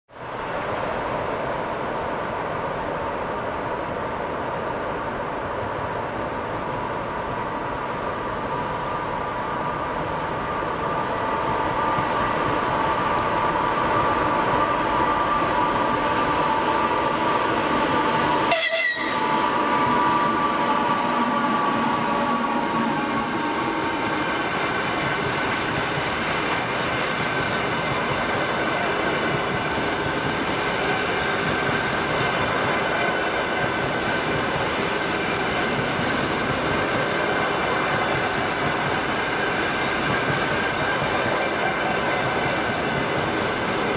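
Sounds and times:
electric locomotive passing: 0.2s - 43.9s
train wheels on rails: 0.2s - 43.9s.

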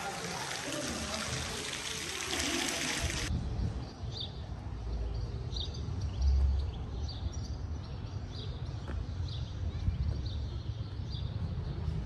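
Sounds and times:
fountain water splashing: 0.0s - 3.3s.

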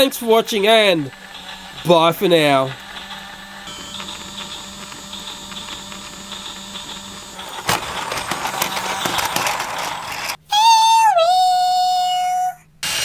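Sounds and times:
toy train motor whining: 0.0s - 10.4s
plastic rattling and clattering: 1.0s - 10.4s.

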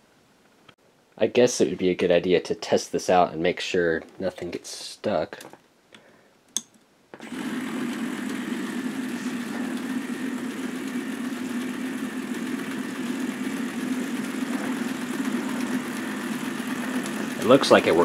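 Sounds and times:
plastic gears whirring: 7.2s - 18.0s
toy motor humming: 7.2s - 18.0s.

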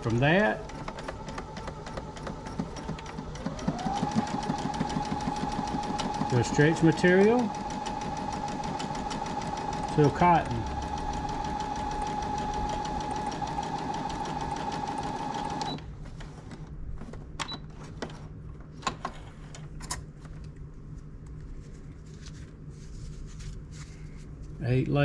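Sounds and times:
sewing machine sewing: 0.0s - 15.8s.

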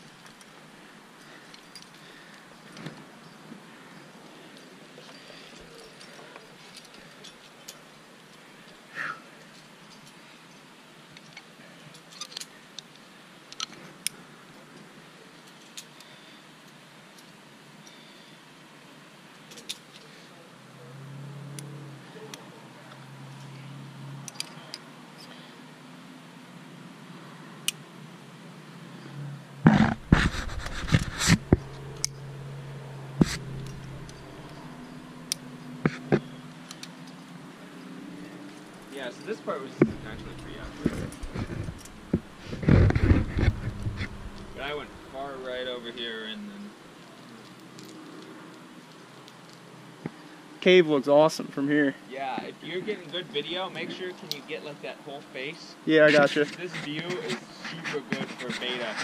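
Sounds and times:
climbing gear clinking: 1.2s - 18.0s, 21.6s - 25.5s, 28.9s - 45.8s, 47.1s - 49.7s
knocks and rubbing of gear: 29.6s - 32.2s, 33.2s - 35.0s, 39.8s - 44.7s
steady hiss: 38.6s - 47.4s.

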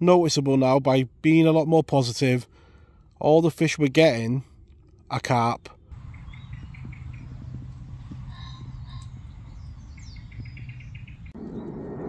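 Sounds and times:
steady low rumble: 2.3s - 12.0s
songbird chirping: 5.5s - 11.9s.

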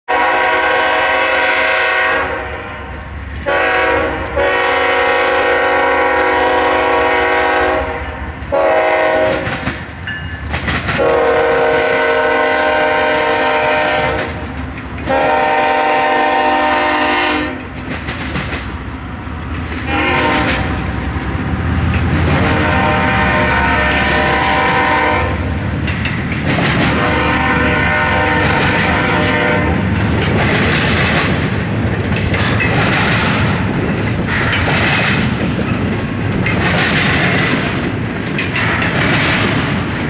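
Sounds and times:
locomotive air horn blasts: 0.1s - 9.6s, 11.0s - 14.4s, 15.1s - 17.7s, 19.8s - 21.2s, 22.2s - 25.5s, 26.9s - 29.9s
diesel locomotive rumble: 0.1s - 40.0s
train wheels clattering: 2.9s - 40.0s.

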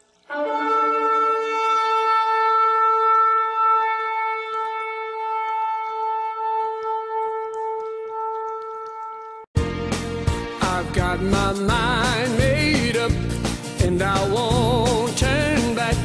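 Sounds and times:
shofar blast: 0.3s - 9.4s.

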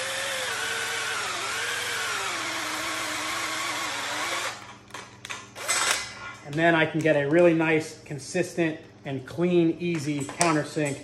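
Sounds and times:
cordless drill drilling into steel: 0.0s - 4.6s.

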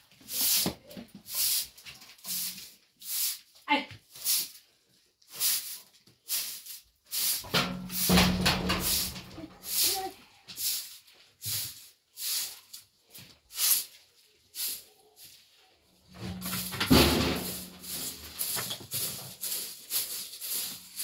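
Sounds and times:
broom sweeping a floor: 0.0s - 21.0s.

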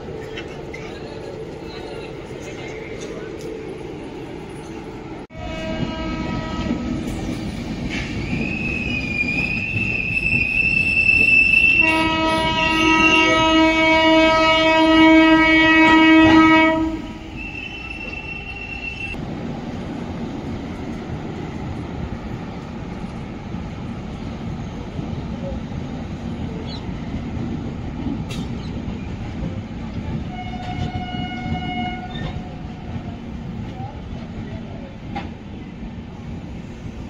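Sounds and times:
train horn: 5.3s - 7.0s, 11.2s - 19.2s, 30.2s - 32.6s
train clattering on rails: 5.6s - 14.6s, 19.1s - 35.8s.

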